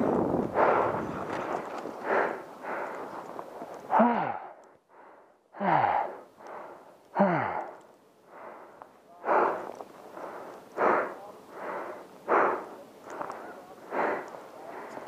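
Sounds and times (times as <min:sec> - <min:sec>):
heavy breathing: 0:00.3 - 0:15.0
voiced sigh: 0:03.9 - 0:04.6.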